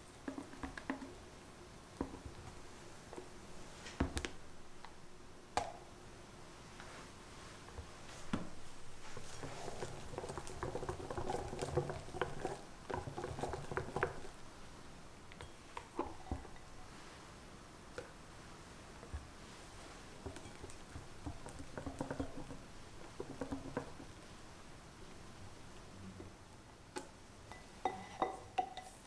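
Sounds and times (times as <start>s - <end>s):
whisk stirring in glass bowl: 9.0s - 14.4s, 20.3s - 24.0s.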